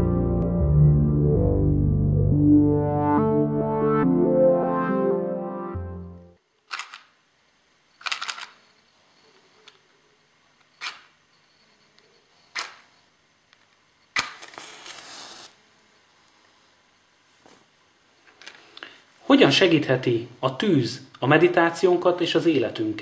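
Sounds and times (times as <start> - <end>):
match flame hissing: 14.2 - 15.6
match igniting with crack: 14.2 - 15.6
match scraping on box: 14.4 - 15.6.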